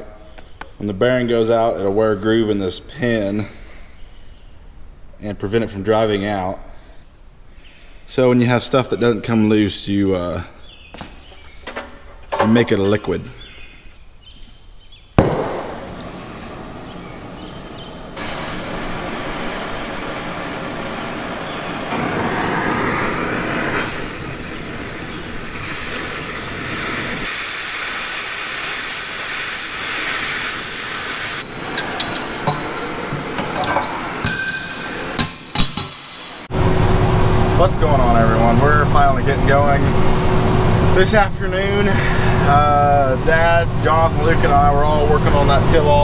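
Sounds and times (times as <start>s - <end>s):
cutting torch hissing: 15.3s - 33.2s
metallic clinks: 31.4s - 36.4s.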